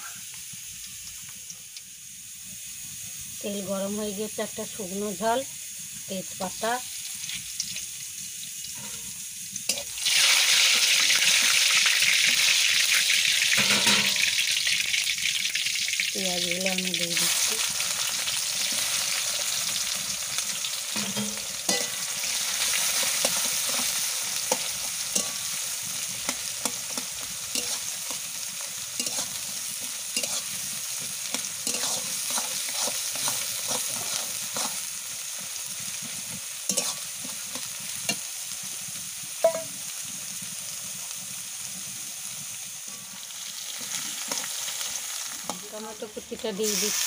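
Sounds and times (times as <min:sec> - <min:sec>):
onions sizzling in oil: 0:00.0 - 0:47.0
metal spatula scraping pan: 0:08.8 - 0:10.0, 0:21.0 - 0:22.2, 0:26.2 - 0:28.2, 0:29.0 - 0:34.9, 0:36.7 - 0:37.7.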